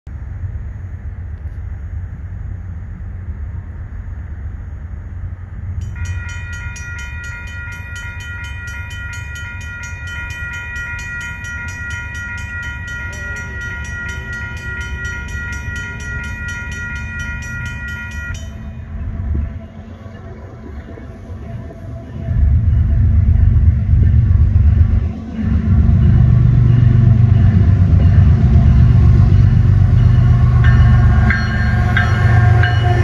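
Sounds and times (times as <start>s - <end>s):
train rumbling: 0.1s - 33.0s
locomotive air horn blast: 6.0s - 26.1s, 27.0s - 33.0s.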